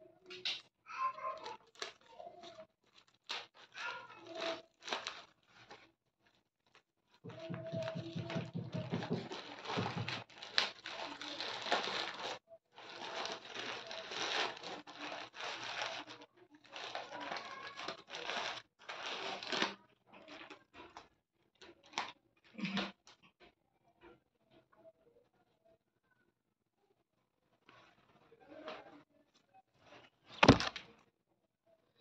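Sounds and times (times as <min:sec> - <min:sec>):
packaging crinkling and rustling: 0:01.3 - 0:21.0, 0:29.9 - 0:30.9.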